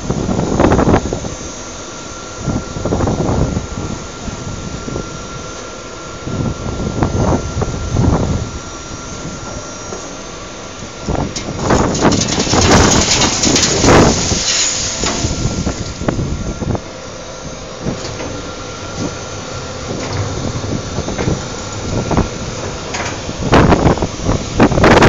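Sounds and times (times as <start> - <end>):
machinery humming and whining: 0.0 - 25.0
waste rattling into hopper: 11.1 - 16.8.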